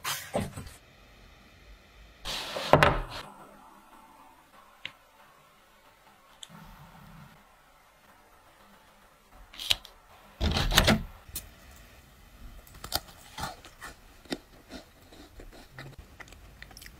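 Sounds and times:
cookies clicking and crackling: 12.6s - 16.9s.

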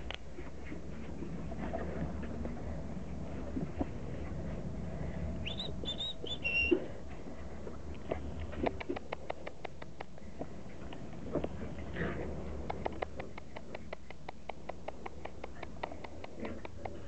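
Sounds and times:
puppies squealing: 5.5s - 6.9s
claws clicking on tiled floor: 8.4s - 10.2s, 12.6s - 17.0s.

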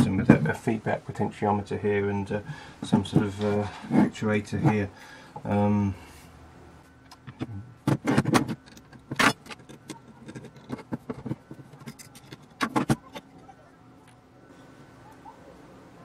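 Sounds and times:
metal clicks and knocks: 7.0s - 13.5s.

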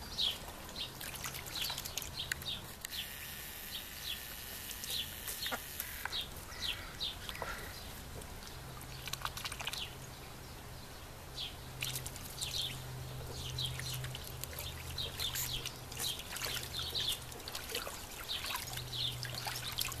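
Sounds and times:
ducks splashing in water: 0.2s - 2.7s, 8.2s - 10.0s, 11.3s - 20.0s.

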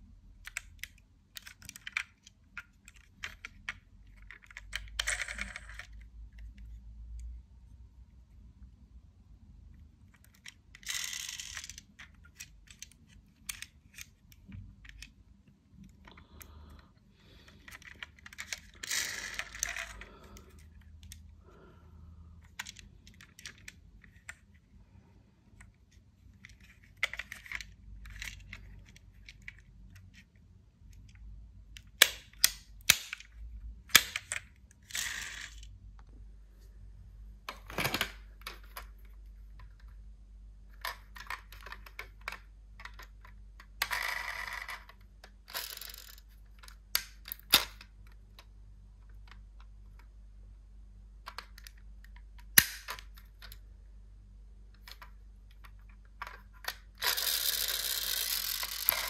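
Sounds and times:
toy cars clicking and clacking: 10.2s - 14.2s, 17.6s - 21.2s, 33.9s - 35.7s, 40.8s - 47.8s, 56.2s - 59.0s.

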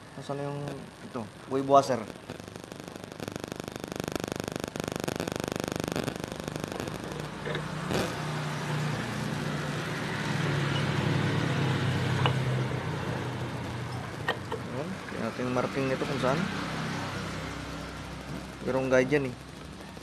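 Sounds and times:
fast buzzing rattle: 2.2s - 14.6s
engine-like hum: 6.6s - 20.0s.

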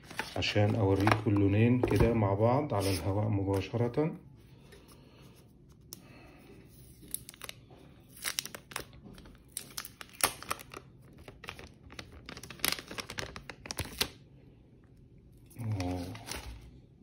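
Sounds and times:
plastic film crinkling: 6.8s - 14.2s.

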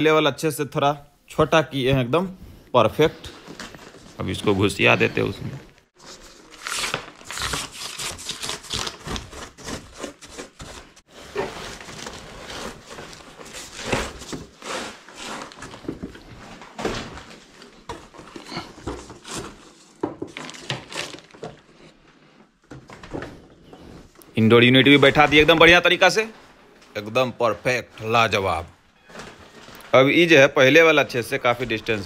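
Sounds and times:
pipes rustling and scraping: 9.5s - 32.0s.

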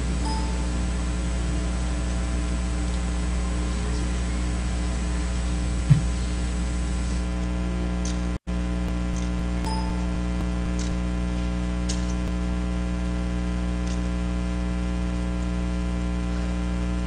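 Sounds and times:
electrical mains hum: 0.0s - 17.0s
short thump: 5.9s - 6.1s.

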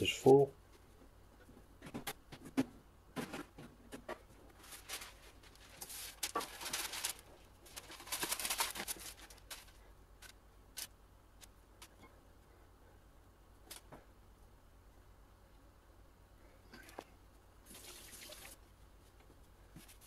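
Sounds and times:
baking paper rustling: 3.2s - 10.9s.

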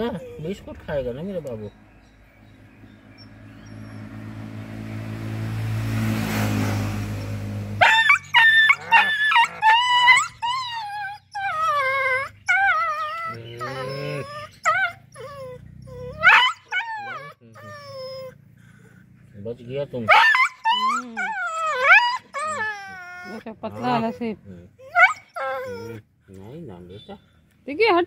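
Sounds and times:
dog whimpering and whining: 0.0s - 0.8s, 7.8s - 18.9s, 20.1s - 26.1s.

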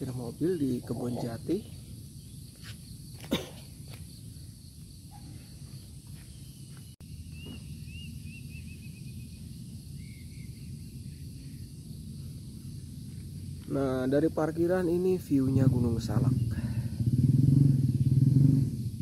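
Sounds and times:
high insect drone: 0.0s - 19.0s
bird chirping: 5.1s - 12.0s.

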